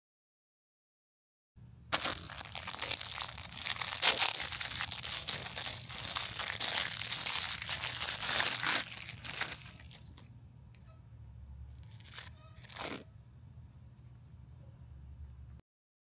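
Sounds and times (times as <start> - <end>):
plastic wrapping crinkling: 1.9 - 10.3, 11.8 - 13.0.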